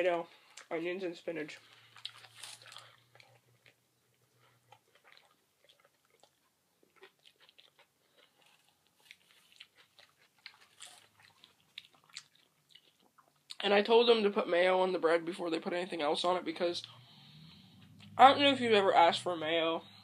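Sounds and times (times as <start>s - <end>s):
person chewing: 1.6s - 13.6s.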